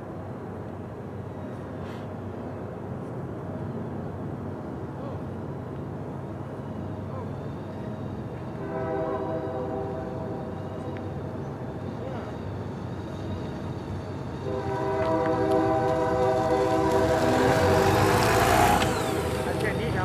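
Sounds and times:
locomotive air horn chord: 8.6 - 11.0, 14.4 - 18.7.

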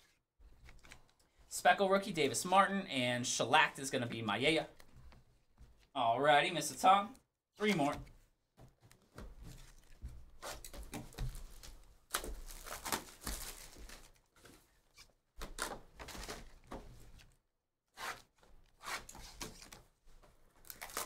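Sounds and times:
plastic wrapping and cardboard crinkling: 8.9 - 16.8, 20.5 - 21.0.

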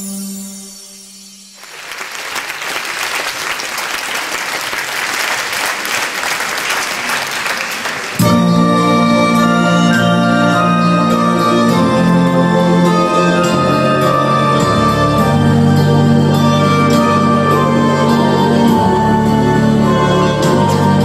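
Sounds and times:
audience applause: 1.6 - 8.4.

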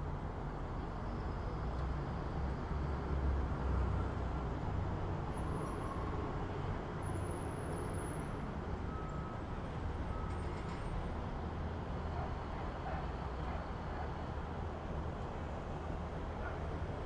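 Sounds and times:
road vehicles rumbling: 0.0 - 17.0.

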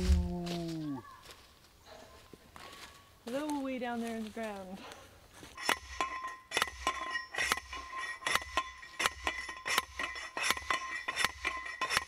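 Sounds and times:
post driver clanking on pipe: 5.6 - 12.0.

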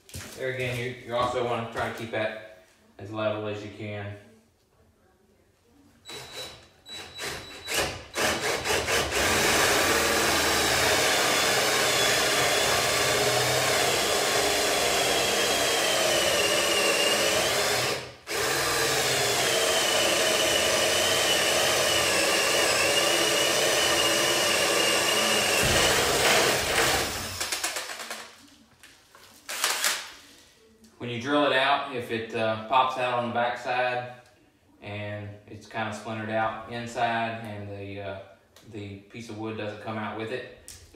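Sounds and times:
cordless drill cutting wood: 6.1 - 28.2, 29.5 - 30.0.

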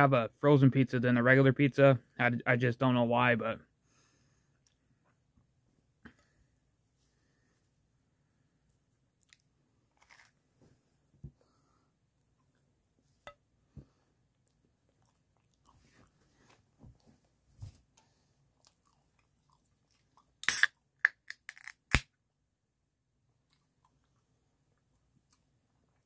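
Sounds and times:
chewing food: 9.2 - 10.3, 14.3 - 17.1, 17.7 - 20.4, 23.3 - 26.0
can clicks: 20.4 - 22.0
soda can opening with fizz: 20.4 - 22.0.

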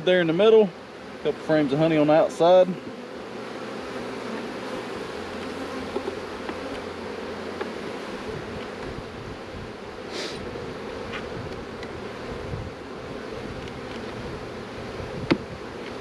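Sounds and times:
bees buzzing: 0.0 - 16.0
short hiss: 10.1 - 10.4.

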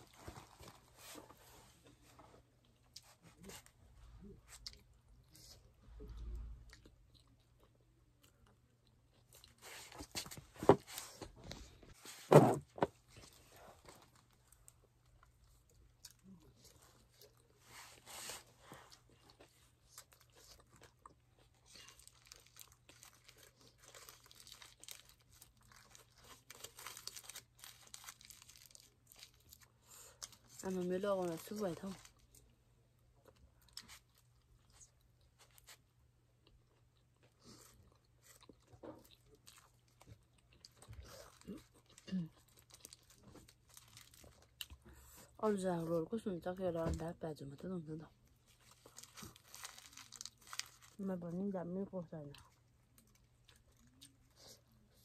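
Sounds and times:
people chewing and crunching: 0.0 - 11.9, 12.8 - 30.6, 31.2 - 45.4, 48.4 - 51.0, 52.3 - 55.0
foil wrapping rustling: 22.0 - 29.6, 48.6 - 51.0.

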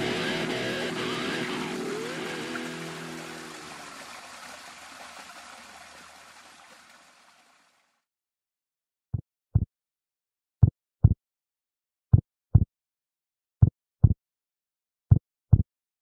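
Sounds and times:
rushing water: 0.0 - 8.0.

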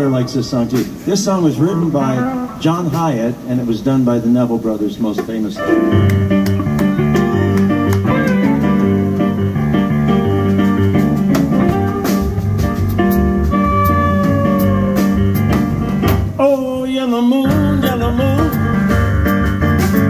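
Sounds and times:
drum kit: 0.0 - 3.7, 5.2 - 16.7, 17.3 - 20.0
stage piano: 0.0 - 20.0
upright bass: 0.0 - 20.0
electric guitar: 5.6 - 16.4.

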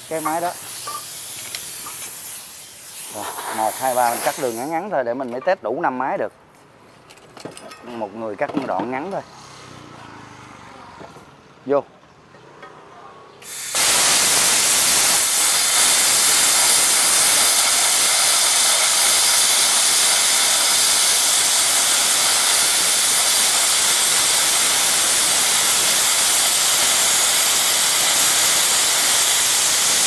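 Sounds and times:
plasma cutter hissing: 0.0 - 5.4, 13.4 - 30.0.

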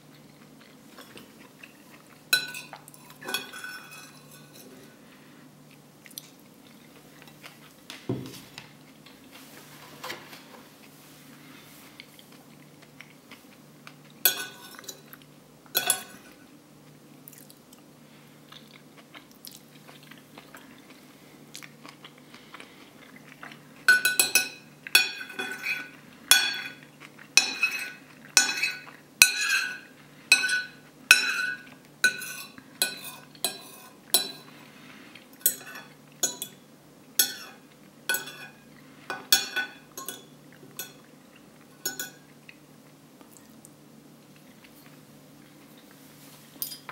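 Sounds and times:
spoon scraping a plate: 2.4 - 4.9, 14.3 - 15.0, 23.9 - 26.8, 27.4 - 34.6, 35.4 - 36.6, 37.2 - 41.0.

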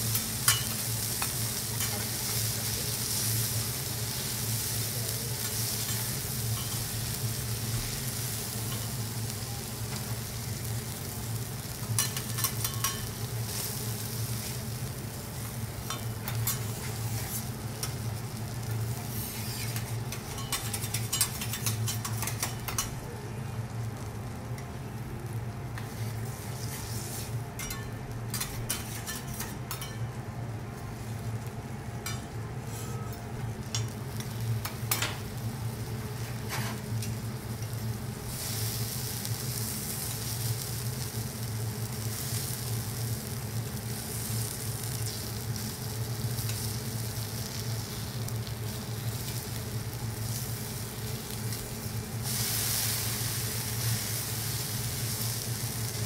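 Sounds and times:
food sizzling on hotplate: 0.0 - 56.0
utensils clicking on griddle: 0.1 - 2.1, 11.8 - 13.6, 15.8 - 18.0, 19.1 - 23.0, 25.8 - 30.0, 33.7 - 35.2.

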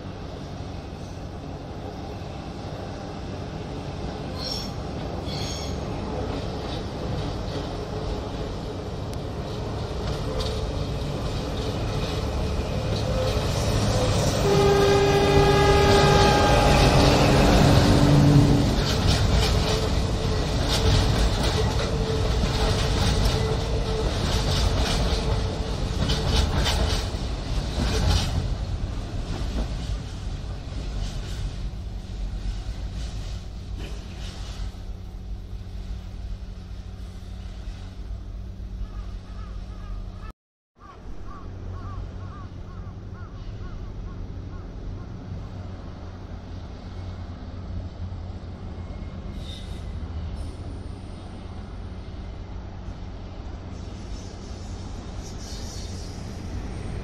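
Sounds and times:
freight train rumbling: 0.0 - 57.0
wheels clacking over rail joints: 5.3 - 31.8
train horn: 13.0 - 20.4.

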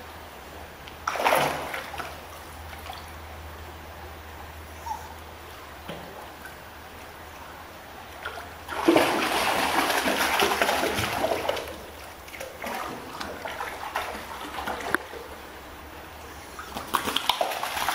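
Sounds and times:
dogs splashing through water: 1.0 - 3.2, 8.2 - 15.5, 16.4 - 17.9.

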